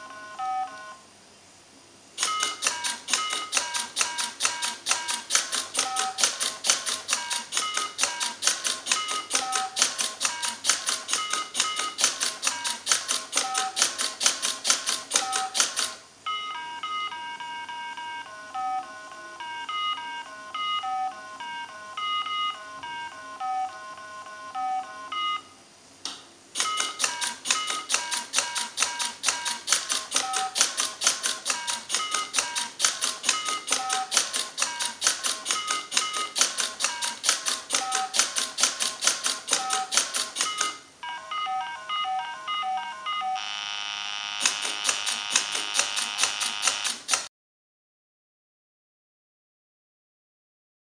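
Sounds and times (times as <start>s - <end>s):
robot mechanism clicking: 2.2s - 16.0s, 26.6s - 40.8s, 44.4s - 47.3s
electronic game beeps: 39.6s - 43.5s.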